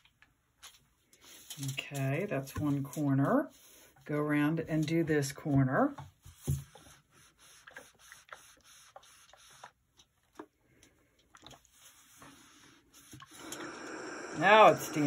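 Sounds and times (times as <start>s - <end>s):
steam hissing: 13.3s - 15.0s.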